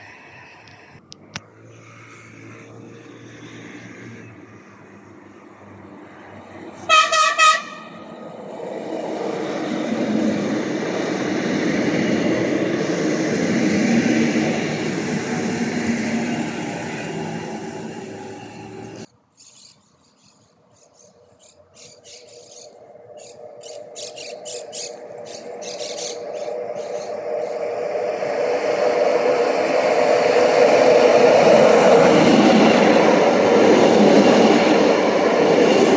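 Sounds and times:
train running past: 0.0 - 19.1, 21.2 - 35.9
train whine: 0.0 - 19.1, 21.1 - 35.9
train horn blasts: 6.8 - 8.1.

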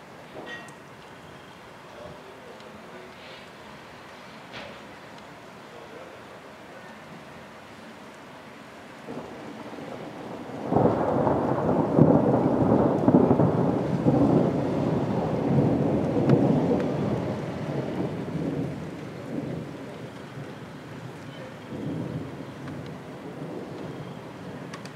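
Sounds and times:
thunder rumbling: 8.9 - 24.9
loud thunderclap: 9.1 - 20.6, 21.6 - 24.9.

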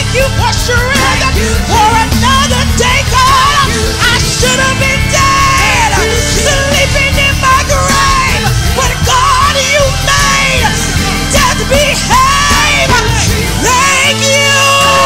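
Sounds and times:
worship leaders' sung cries: 0.0 - 15.0
held low instrumental notes: 0.7 - 11.6.

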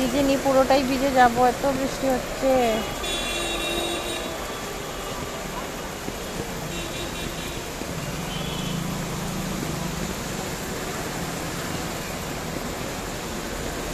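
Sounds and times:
heavy rain on wet street: 0.0 - 13.9
motor scooter passing: 5.4 - 12.7.

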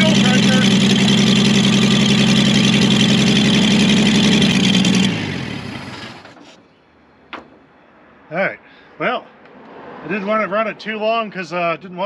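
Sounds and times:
engine running down to a stop: 0.0 - 6.4
truck engine idling: 0.0 - 6.4.

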